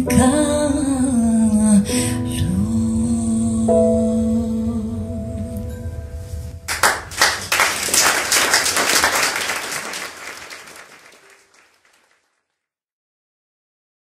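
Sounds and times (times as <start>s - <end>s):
audience applause: 6.7s - 12.3s.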